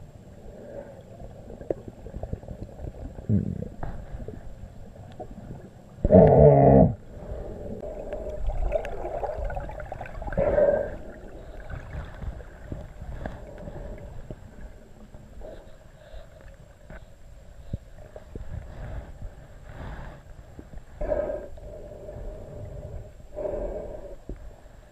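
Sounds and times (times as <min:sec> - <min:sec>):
underwater gurgling: 0:00.0 - 0:17.0
muffled underwater rumbling: 0:00.0 - 0:24.9.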